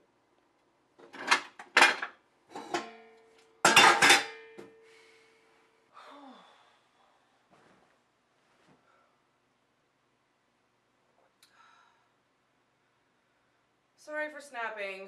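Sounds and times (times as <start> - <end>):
pots and pans clattering: 1.0 - 3.0, 3.6 - 4.6.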